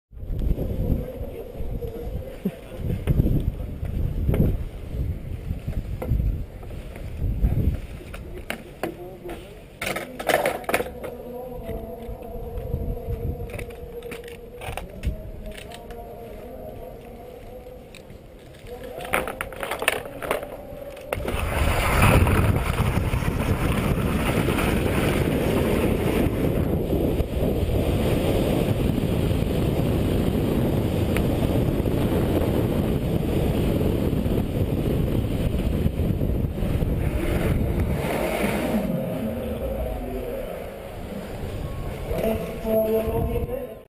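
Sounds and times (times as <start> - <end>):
wind rushing over microphone: 0.1 - 8.5, 11.2 - 16.9, 20.4 - 43.9
skis running on snow: 21.2 - 26.5.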